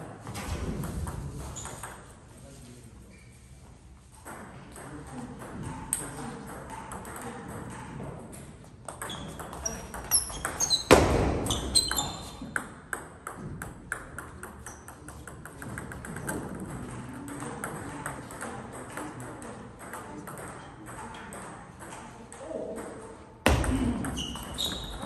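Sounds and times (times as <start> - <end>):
ping pong ball clicking off paddles: 4.2 - 25.0
ball bouncing away: 8.8 - 18.0, 22.8 - 25.0.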